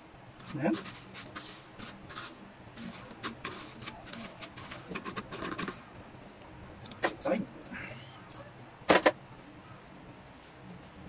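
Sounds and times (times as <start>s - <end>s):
breadcrumbs rustling and crunching: 0.4s - 5.8s.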